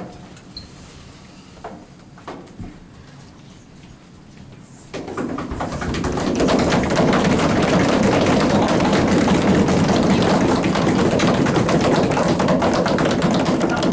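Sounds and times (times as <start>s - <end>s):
group applauding: 5.4s - 13.9s.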